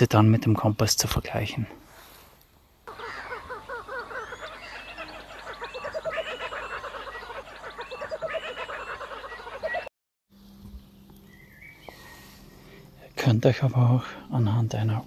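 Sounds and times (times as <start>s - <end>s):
low steady hum: 0.0s - 15.0s
chorus of pulsed animal calls: 2.8s - 9.9s.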